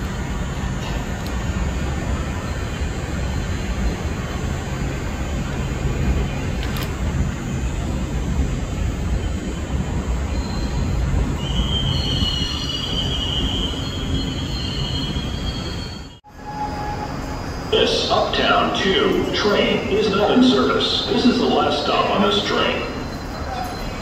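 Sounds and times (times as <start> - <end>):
subway train rumbling: 0.0 - 24.0
train wheels squealing: 2.2 - 3.8, 9.2 - 17.7, 22.4 - 24.0.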